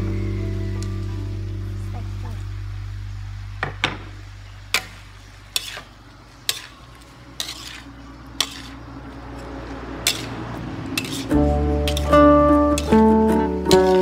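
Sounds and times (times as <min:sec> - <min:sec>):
light sizzle of frying: 0:00.0 - 0:14.0
metal spatula clanking on wok: 0:07.4 - 0:08.8, 0:10.0 - 0:10.3, 0:11.0 - 0:14.0.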